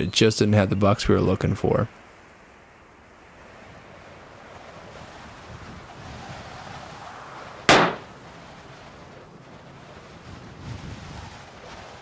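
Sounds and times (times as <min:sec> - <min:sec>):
wind blowing: 0:01.4 - 0:12.0
loud hit: 0:07.7 - 0:08.1.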